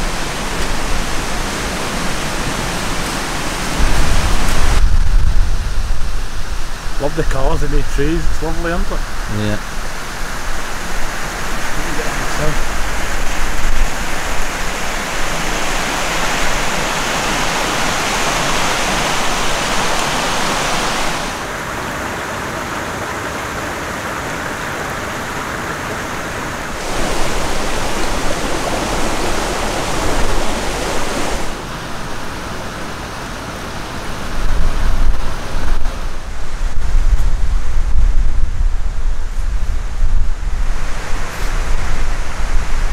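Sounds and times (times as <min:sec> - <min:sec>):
wind buffeting microphone: 0:00.0 - 0:21.4, 0:26.6 - 0:31.6, 0:34.2 - 0:42.9
water at shore: 0:00.0 - 0:42.9
wind rushing: 0:02.8 - 0:21.4, 0:26.7 - 0:31.6.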